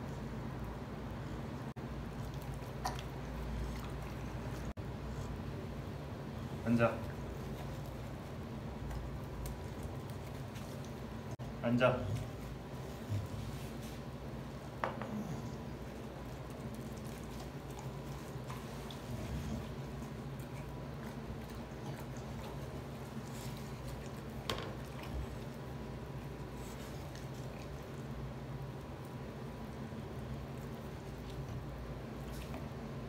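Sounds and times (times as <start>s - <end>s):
dog chewing and lapping: 2.0s - 5.3s, 6.8s - 11.4s, 15.1s - 29.2s.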